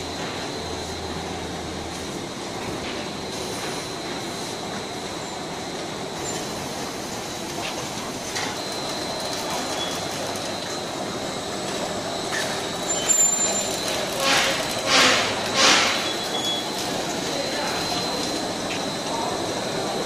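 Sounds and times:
production line machinery rumble: 0:00.0 - 0:20.0
thin high whine: 0:03.2 - 0:20.0
short high squeal: 0:12.4 - 0:16.8.

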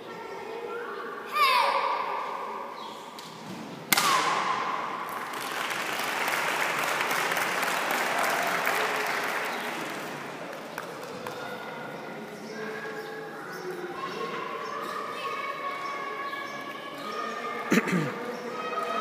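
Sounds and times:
sharp crack: 0:03.9 - 0:04.8
crowd applauding: 0:05.1 - 0:11.5.

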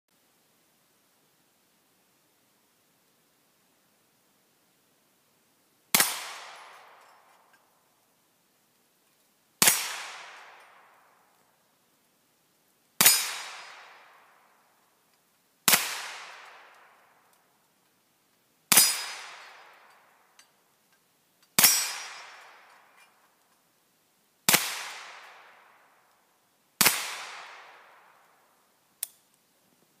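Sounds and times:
gunshots ringing off steel target: 0:05.9 - 0:07.5, 0:13.0 - 0:14.3, 0:18.7 - 0:20.2, 0:21.6 - 0:23.0.

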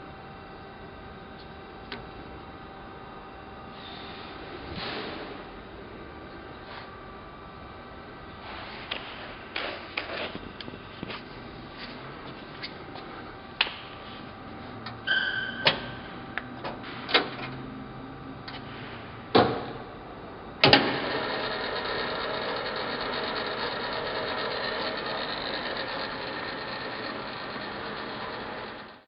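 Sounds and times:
short squeak: 0:15.0 - 0:16.1
lathe motor running: 0:20.4 - 0:29.0.

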